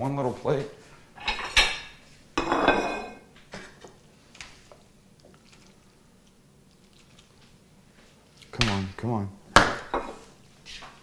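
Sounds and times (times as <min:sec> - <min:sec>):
kitchenware clatter: 0:01.2 - 0:03.9, 0:09.6 - 0:10.3
soft pasta squelches: 0:03.7 - 0:08.9.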